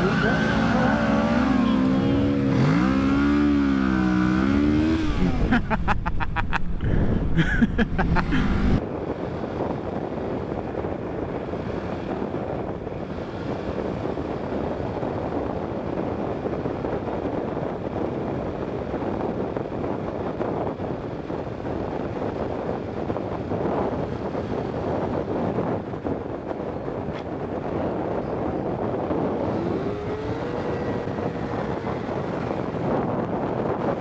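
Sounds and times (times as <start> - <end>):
motorcycle engine revving: 0.0 - 5.6, 8.2 - 8.8, 26.6 - 34.0
wind rushing while riding: 0.0 - 34.0.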